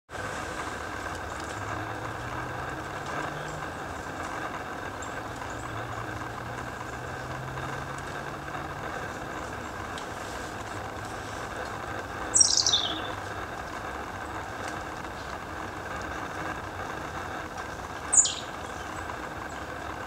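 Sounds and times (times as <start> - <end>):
low hum: 0.1 - 20.0
outdoor background hiss: 0.1 - 20.0
faint high bird chirps: 12.3 - 13.2, 18.1 - 19.0.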